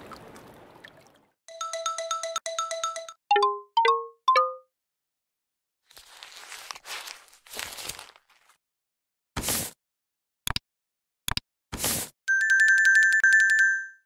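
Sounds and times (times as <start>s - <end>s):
crumpled paper crinkling: 5.9s - 8.6s.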